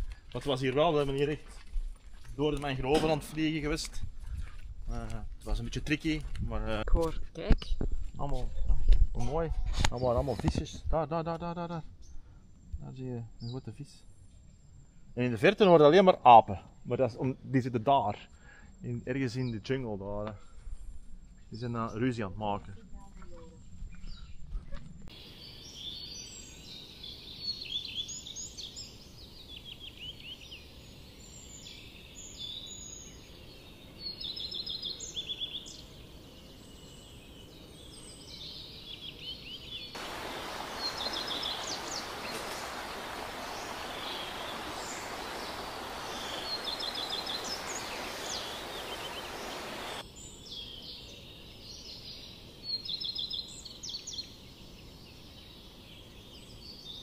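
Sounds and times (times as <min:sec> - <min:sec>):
forest birds chirping: 0:00.0 - 0:57.0
steady hiss: 0:39.9 - 0:51.8.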